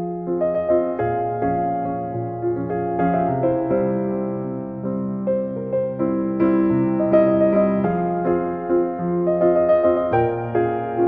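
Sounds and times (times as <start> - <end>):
soft piano music: 0.0 - 11.0.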